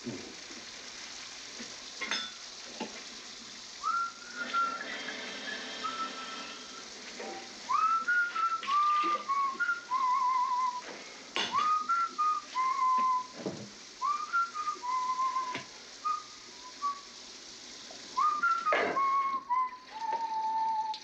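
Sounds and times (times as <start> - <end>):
whistled melody: 3.8 - 10.8, 11.5 - 13.4, 14.0 - 17.1, 18.2 - 21.0.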